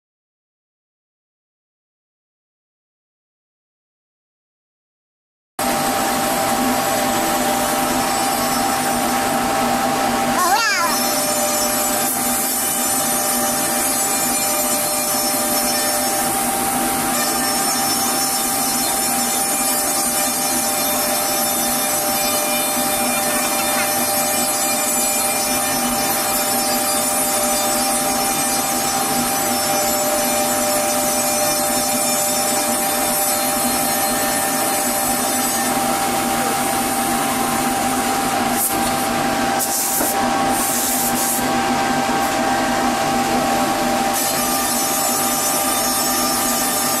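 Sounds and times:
machine spindle cutting panel: 10.9 - 41.1.

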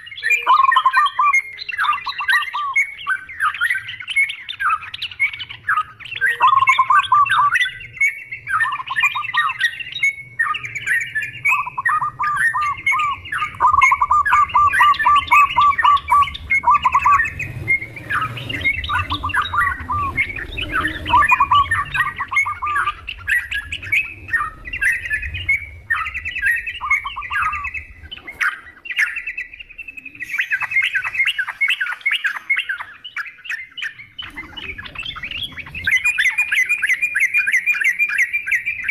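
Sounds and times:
birds chattering and singing: 0.0 - 38.9
low rumble: 11.1 - 31.3.

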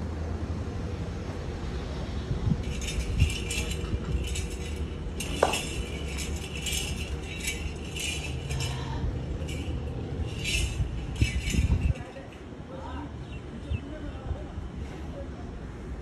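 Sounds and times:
low steady rumble: 0.0 - 13.0
metallic jingling: 2.6 - 12.5.

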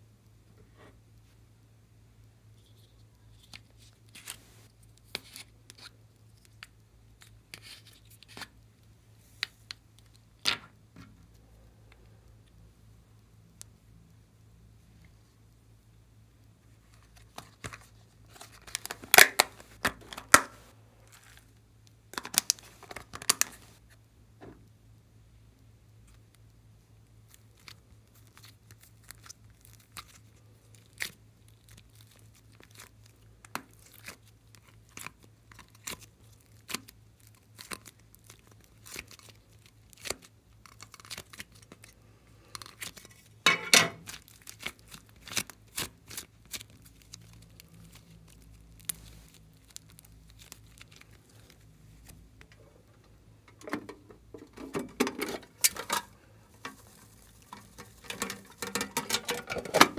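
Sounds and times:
plastic crinkling: 16.9 - 21.6, 27.3 - 59.9.

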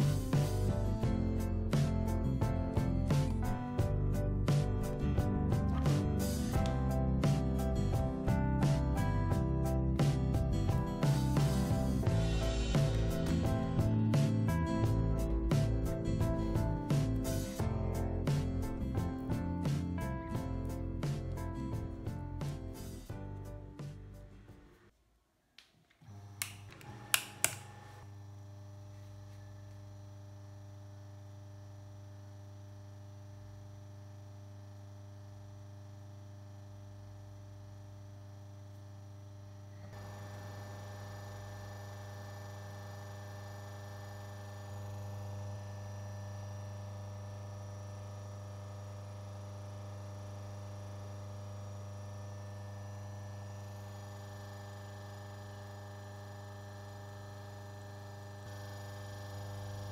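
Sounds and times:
washing machine motor humming: 5.3 - 18.8, 26.0 - 59.9
power strip switch clicks: 26.4 - 27.8.

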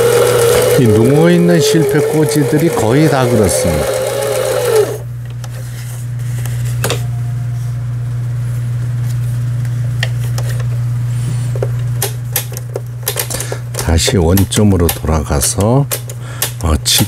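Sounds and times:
sewing machine running: 0.0 - 5.1.

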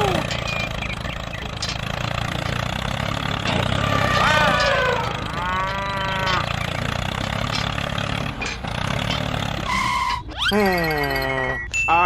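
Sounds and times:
tractor engine chugging: 0.0 - 11.8
cow mooing: 3.8 - 6.5.

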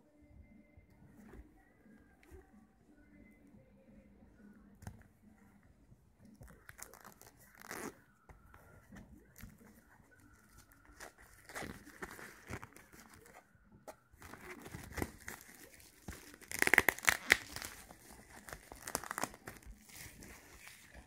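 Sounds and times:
plastic shrink-wrap tearing: 14.3 - 21.0.

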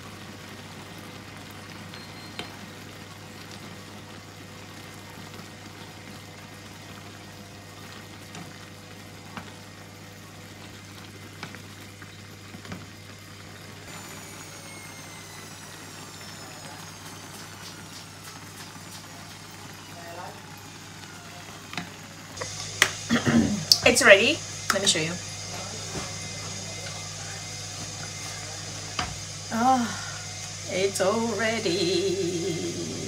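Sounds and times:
soup simmering and bubbling: 0.0 - 33.0.

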